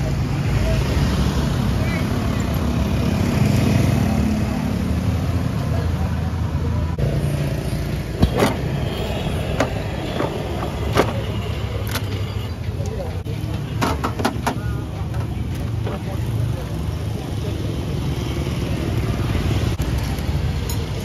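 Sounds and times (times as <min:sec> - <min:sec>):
motorbike engines passing: 0:00.0 - 0:13.8.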